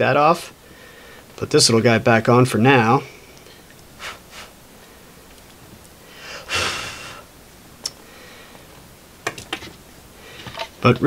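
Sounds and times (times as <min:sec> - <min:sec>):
breathy rush of noise: 0:06.0 - 0:07.4, 0:08.0 - 0:08.8.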